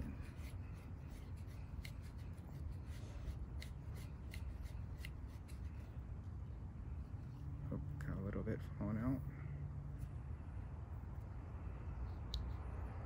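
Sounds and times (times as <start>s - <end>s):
hands rubbing and handling: 0.0s - 6.0s
low background rumble: 0.0s - 13.0s.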